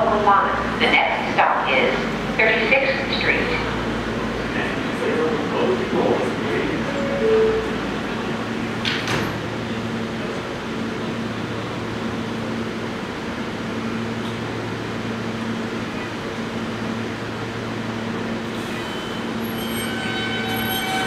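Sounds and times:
subway train low hum: 0.0 - 21.0.

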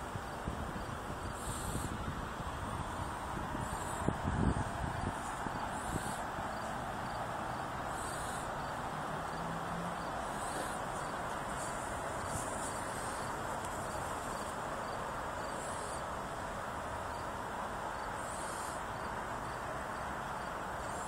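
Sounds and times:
steady background hum: 0.0 - 21.0
faint regular insect chirping: 0.2 - 2.0, 3.6 - 21.0
insect short high call: 0.8 - 2.0, 3.6 - 7.2, 7.9 - 16.1, 18.0 - 19.6.

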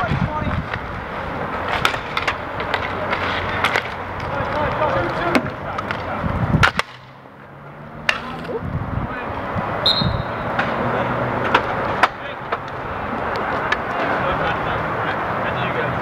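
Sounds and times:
inline skate wheels rolling: 0.0 - 8.8, 9.4 - 15.2
hockey sticks and puck clacking: 0.1 - 7.2, 7.9 - 8.6, 10.2 - 14.6
short high squeak: 9.9 - 10.4.

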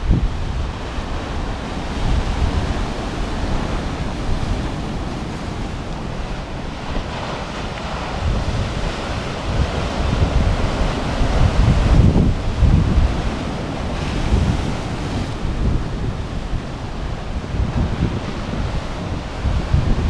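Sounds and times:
surf breaking on rocky shore: 0.0 - 20.0
wind buffeting microphone: 0.0 - 20.0.

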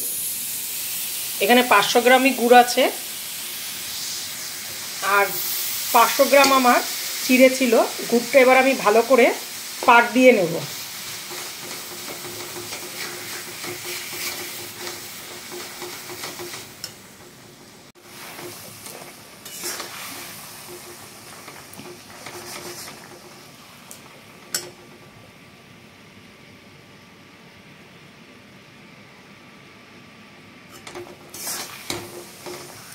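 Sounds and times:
syrup sizzling: 0.0 - 24.7, 30.7 - 32.9
spatula scraping a pan: 11.1 - 17.3, 18.0 - 23.3, 30.7 - 32.9.

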